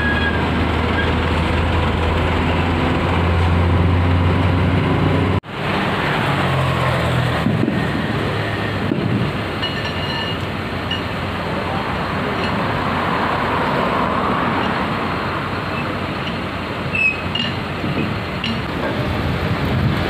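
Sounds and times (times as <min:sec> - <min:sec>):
background traffic: 0:00.0 - 0:20.0
car passing close by: 0:12.7 - 0:15.5.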